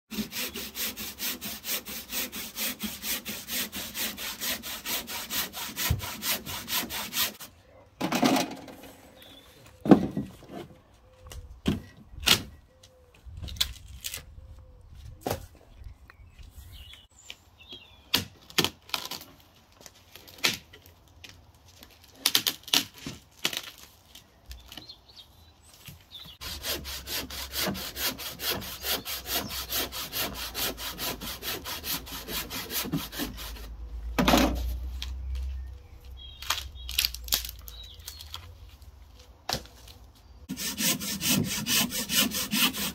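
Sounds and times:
hand saw cutting wood: 0:00.1 - 0:07.5, 0:26.4 - 0:33.8, 0:40.5 - 0:42.9
sticks cracking and knocking: 0:18.1 - 0:24.9, 0:34.2 - 0:40.1.

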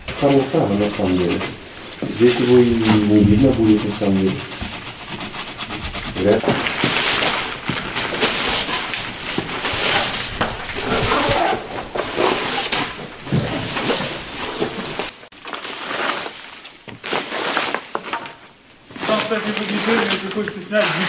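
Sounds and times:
leafy plants brushing: 0:00.0 - 0:21.0
footsteps crunching over debris: 0:06.2 - 0:21.0
clothing rustling: 0:06.4 - 0:18.0.

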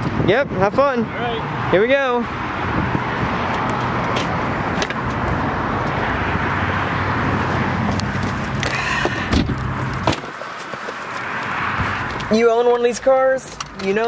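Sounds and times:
car door shutting: 0:08.6 - 0:10.4.

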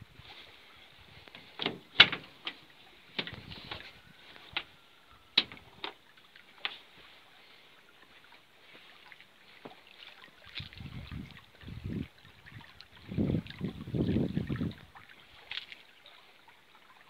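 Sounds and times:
van door latch clicks and knocks: 0:05.4 - 0:05.9.

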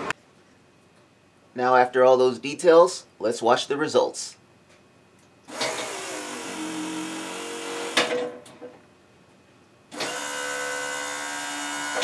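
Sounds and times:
hydraulic pump motor whining: 0:05.5 - 0:08.3, 0:09.9 - 0:12.0.

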